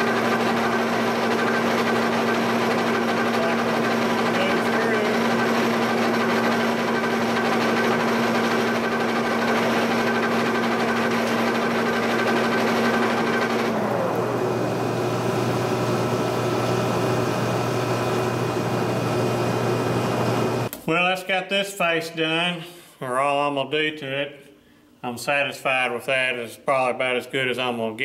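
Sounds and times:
milling machine feed whine: 0:00.0 - 0:20.7.

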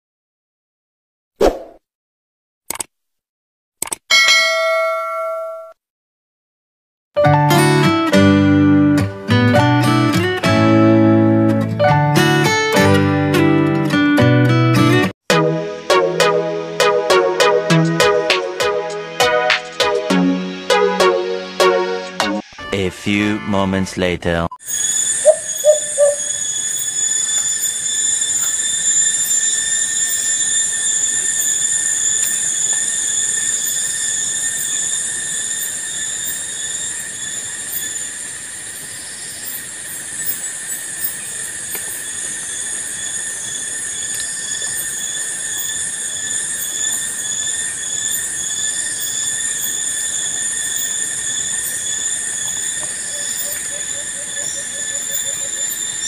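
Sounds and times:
shrill insect chorus: 0:24.6 - 0:56.0.

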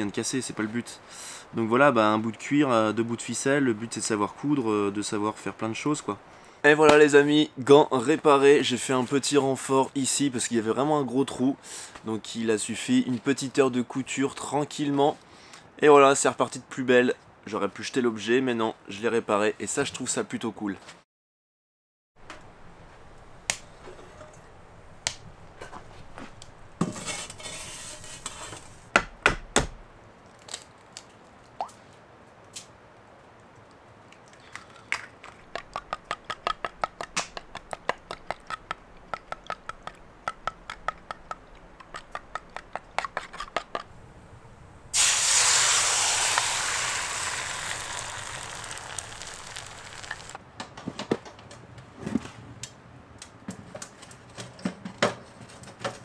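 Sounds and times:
eggs beaten in wooden bowl: 0:35.2 - 0:43.9
eggs sizzling in hot pan: 0:44.9 - 0:50.4.

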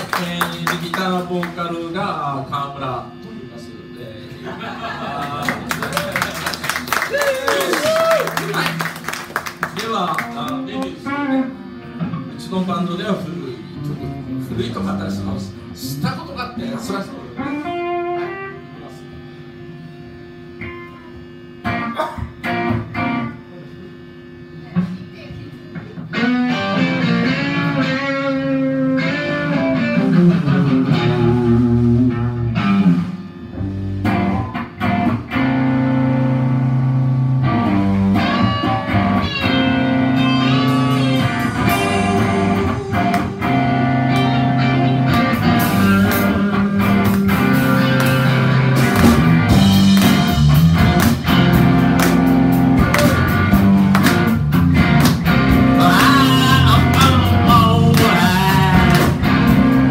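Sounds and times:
bass guitar: 0:00.0 - 0:59.9
electric guitars: 0:00.0 - 0:59.9
drums and cymbals: 0:40.2 - 0:44.3, 0:45.2 - 0:59.9.

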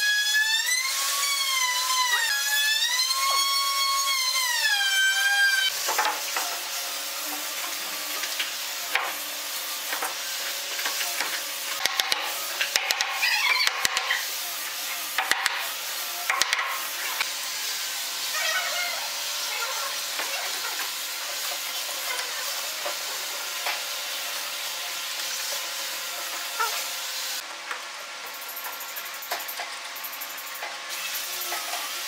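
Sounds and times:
hammer tapping wood: 0:11.2 - 0:14.1, 0:15.2 - 0:15.6, 0:16.3 - 0:16.7.

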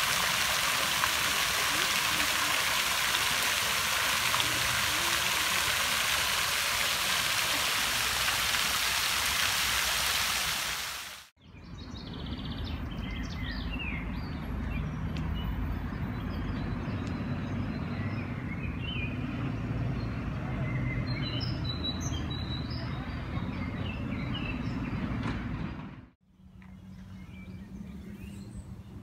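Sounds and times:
fountain water splashing: 0:00.0 - 0:11.3.

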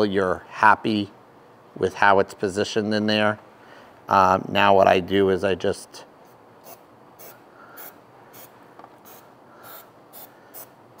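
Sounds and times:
aerosol spray hisses: 0:06.6 - 0:10.7.

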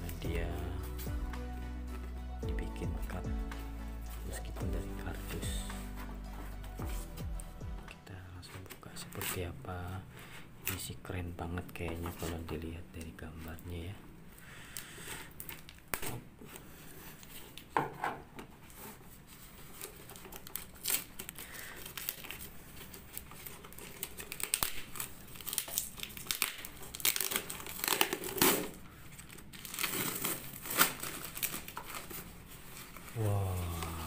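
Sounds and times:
cardboard ripping and crinkling: 0:18.7 - 0:34.0
scissors cutting packing tape: 0:23.4 - 0:32.2.

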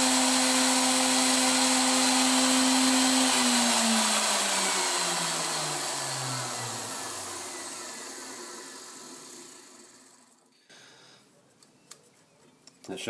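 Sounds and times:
grinder spinning down: 0:00.0 - 0:10.4.

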